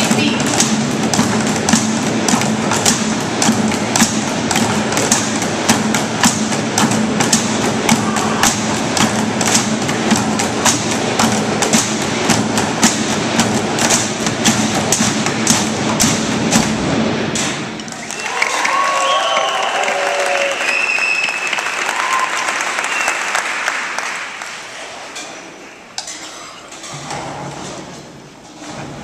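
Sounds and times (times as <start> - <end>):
percussion on barrels and buckets: 0.0 - 22.2.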